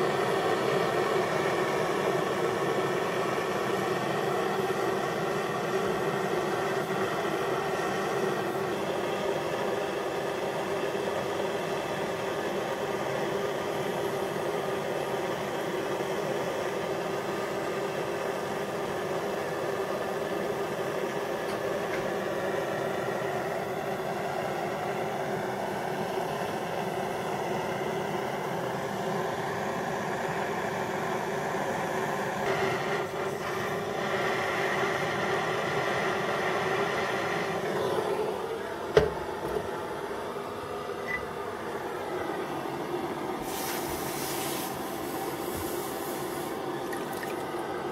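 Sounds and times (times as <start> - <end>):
gas torch hissing: 0.0 - 30.1, 32.4 - 39.2, 43.3 - 47.0.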